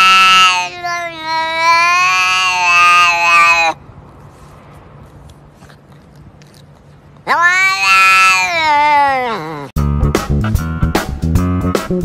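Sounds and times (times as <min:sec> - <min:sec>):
cat meowing: 0:00.0 - 0:03.8, 0:07.2 - 0:09.7.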